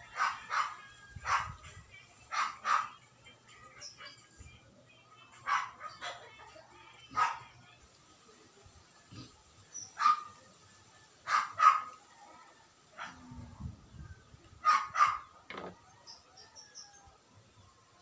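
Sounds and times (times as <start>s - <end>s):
dog barking: 0.1s - 1.6s, 2.3s - 3.0s, 5.4s - 6.4s, 7.1s - 7.5s, 10.0s - 10.4s, 11.2s - 12.0s, 13.0s - 13.3s, 14.6s - 15.3s.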